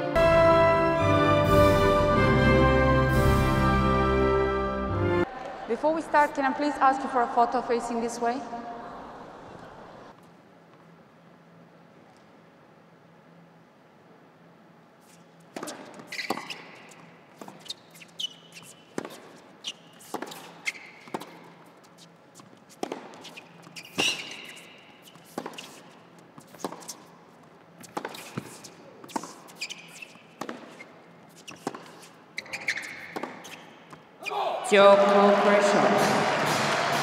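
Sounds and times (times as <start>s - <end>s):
shoes squeaking on court: 15.0s - 34.4s
racket striking tennis ball: 15.5s - 21.7s, 22.4s - 27.2s, 27.8s - 34.0s
tennis ball bouncing: 15.5s - 34.1s.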